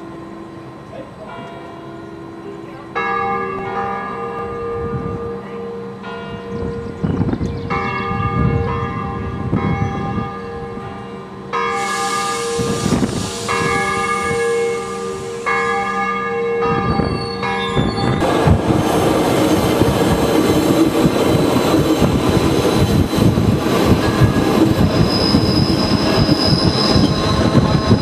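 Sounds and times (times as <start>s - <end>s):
church bells ringing: 0.0s - 18.7s, 23.3s - 24.8s
rushing hiss: 11.7s - 16.1s.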